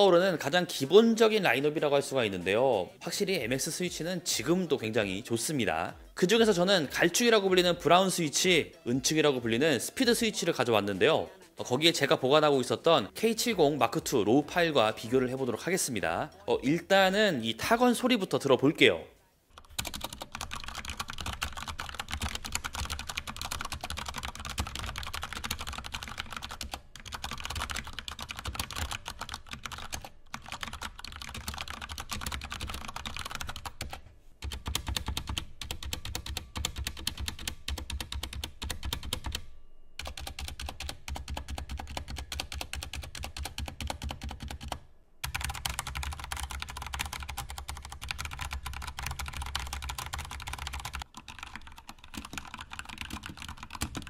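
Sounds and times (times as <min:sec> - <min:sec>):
mechanical keyboard typing: 0:19.6 - 0:39.4, 0:40.0 - 0:54.0.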